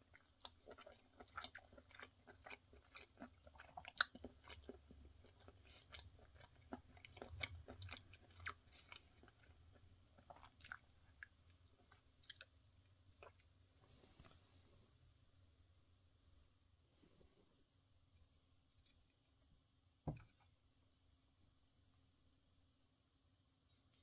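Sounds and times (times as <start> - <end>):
person chewing food: 0.0 - 14.4.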